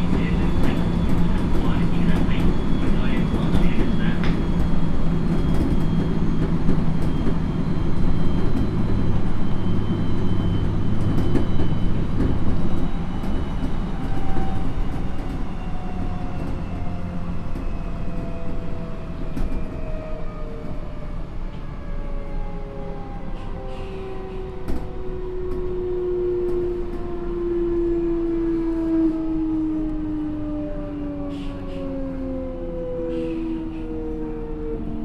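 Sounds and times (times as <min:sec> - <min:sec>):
wheels rumbling on rails: 0:00.0 - 0:32.4
electric train inverter whining: 0:00.0 - 0:35.0.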